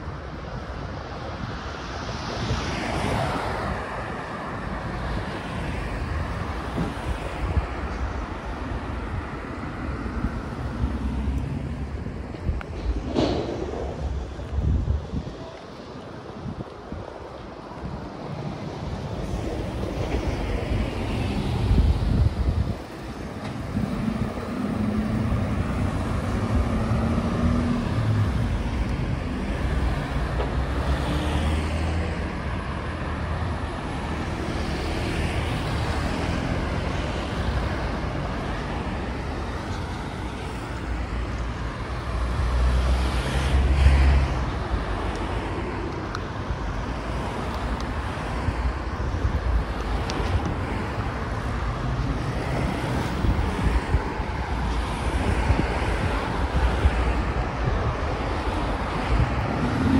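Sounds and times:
cars passing: 0.0 - 59.9
loud vehicle passing: 23.5 - 32.9, 55.0 - 59.9.

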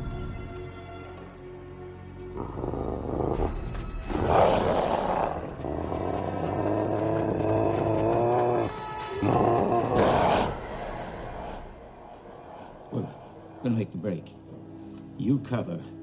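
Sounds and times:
monster growl: 2.3 - 10.7
monster roars: 2.4 - 10.7.

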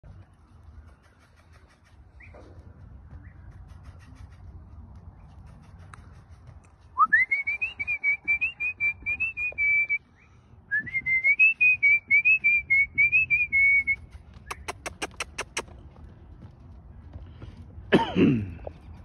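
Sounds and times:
person whistling: 7.0 - 10.0, 10.7 - 14.7
sharp clicks: 14.5 - 15.7.

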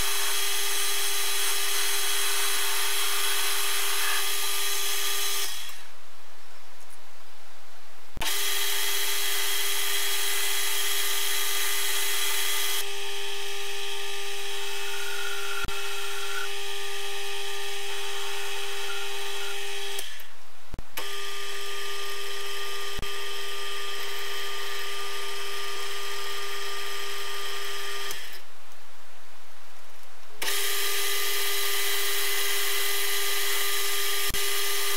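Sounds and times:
metal lathe whining: 14.0 - 16.5, 17.7 - 20.2.

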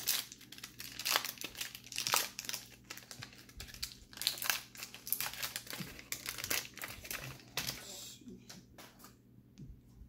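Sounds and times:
foil wrapper crinkling and tearing: 0.0 - 7.8.

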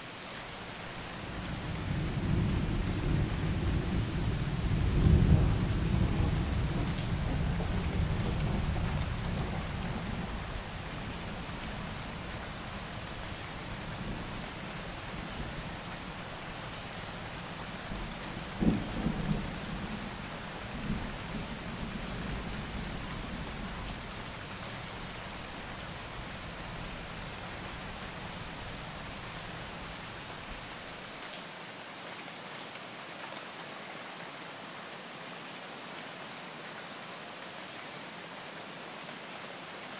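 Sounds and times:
steady rain: 0.0 - 39.9
thunder rolling: 18.6 - 19.6.

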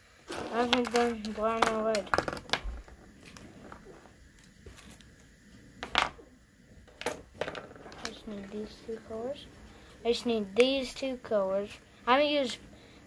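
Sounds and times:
art supplies clicking and knocking: 0.3 - 3.0, 6.9 - 8.2.

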